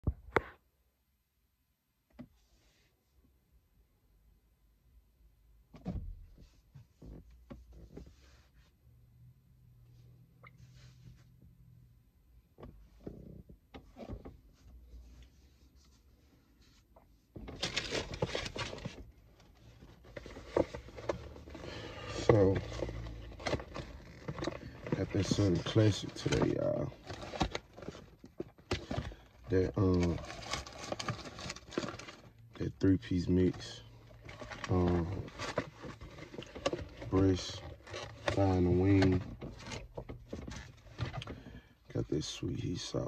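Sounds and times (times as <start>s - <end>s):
handling rustle: 13.9s - 32.3s, 33.0s - 41.4s
dense crinkly rustle: 17.5s - 32.3s, 33.4s - 41.2s.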